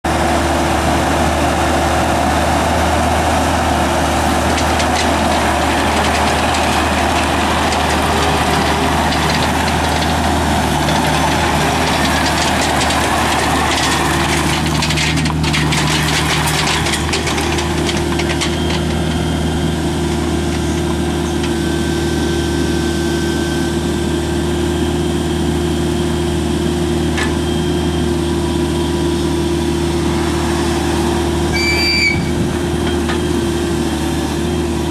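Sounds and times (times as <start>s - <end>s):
diesel engine running: 0.0s - 34.9s.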